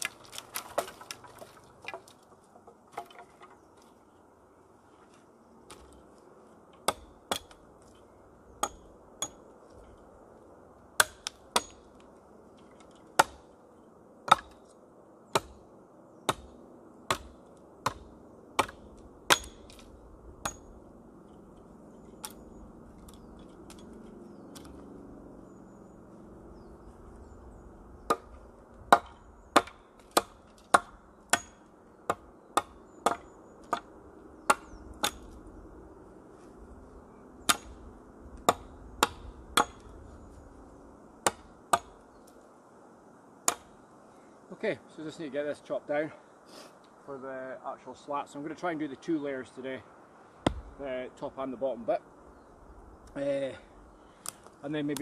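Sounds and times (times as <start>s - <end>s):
hatchet chopping wooden pole: 0.0s - 3.4s, 6.8s - 7.6s, 8.6s - 9.4s, 11.0s - 12.1s, 12.7s - 13.5s, 14.2s - 14.6s, 15.3s - 15.6s, 16.3s - 20.7s, 28.1s - 33.9s, 34.5s - 35.4s, 37.4s - 37.8s, 38.4s - 39.9s, 41.2s - 42.0s, 43.4s - 43.7s, 50.4s - 50.8s.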